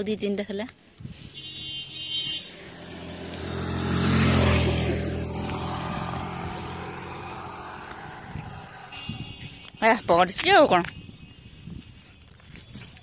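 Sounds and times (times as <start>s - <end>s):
vehicle driving past: 2.4s - 9.1s.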